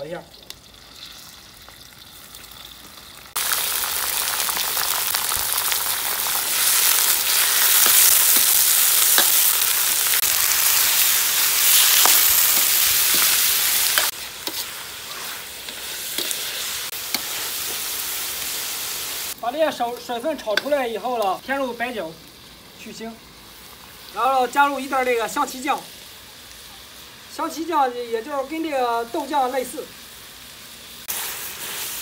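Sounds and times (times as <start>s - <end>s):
meat sizzling in hot oil: 0.0s - 32.0s
metal ladle scraping wok: 9.1s - 18.0s.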